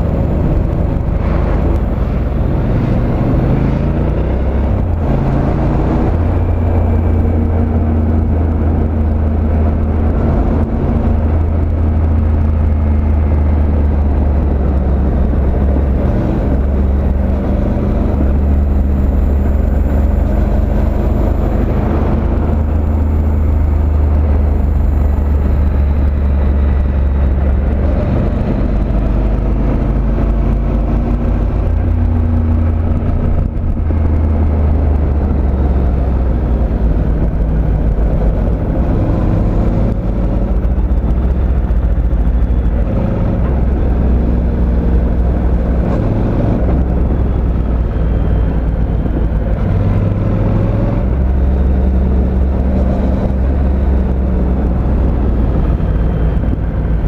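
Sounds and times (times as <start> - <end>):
motorcycle engine running: 0.0 - 57.0
wind rumble on microphone: 0.0 - 57.0.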